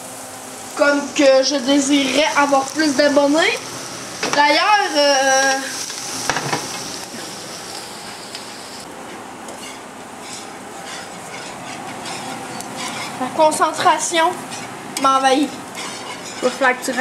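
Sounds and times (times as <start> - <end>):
food sizzling in frying pan: 0.0 - 17.0
utensil scraping pan: 9.1 - 15.1, 15.7 - 17.0.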